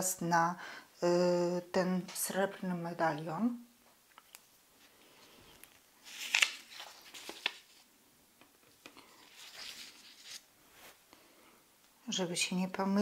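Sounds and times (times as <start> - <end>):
hands rustling fabric: 8.8 - 11.1.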